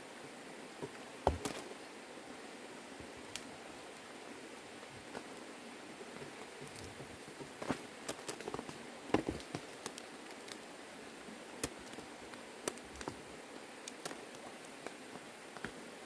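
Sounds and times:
background hiss: 0.0s - 16.0s
rustling: 6.2s - 10.7s.

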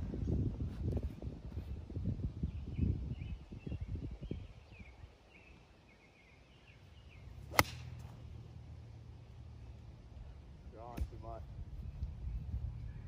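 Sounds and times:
birds chirping: 2.4s - 10.9s
golf club striking ball: 7.5s - 8.2s.

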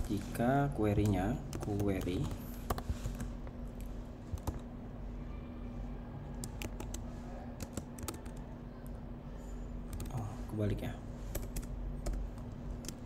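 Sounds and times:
faint steady hum: 0.0s - 13.0s
keyboard typing: 0.9s - 3.3s, 4.3s - 4.7s, 6.4s - 7.0s, 7.6s - 9.0s, 9.9s - 10.2s, 11.3s - 13.0s.

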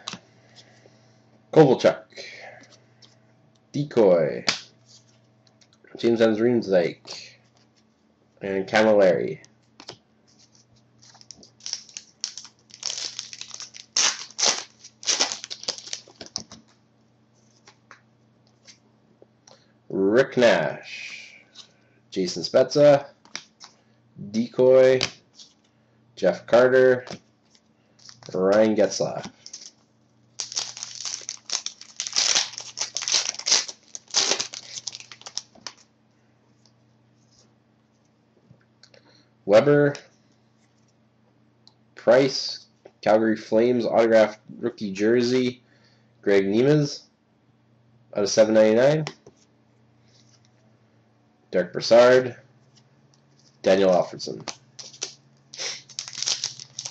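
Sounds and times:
cards rustling: 9.8s - 16.7s, 27.1s - 29.8s, 30.4s - 35.9s, 53.4s - 56.9s
foil wrapper crinkling: 10.4s - 16.6s, 28.0s - 28.4s, 29.4s - 35.9s, 54.4s - 56.9s.

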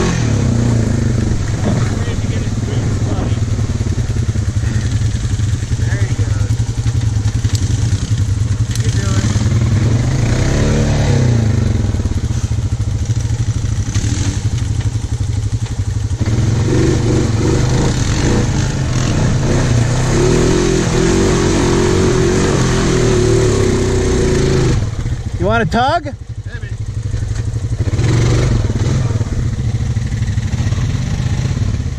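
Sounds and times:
atv engine revving: 0.0s - 31.9s.

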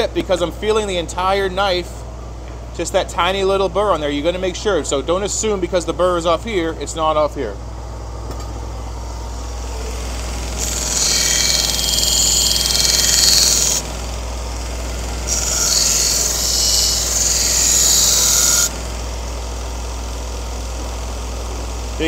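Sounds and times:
belt grinder motor hum: 8.9s - 22.0s.

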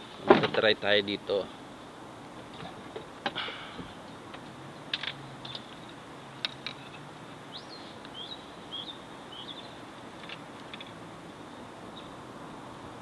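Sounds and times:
steady background hiss: 0.0s - 13.0s
bird chirping: 5.4s - 5.8s, 7.5s - 9.9s, 11.5s - 12.2s.

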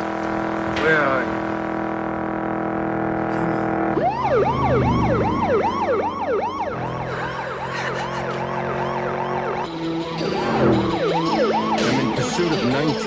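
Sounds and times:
police siren fast yelp: 3.9s - 13.0s.

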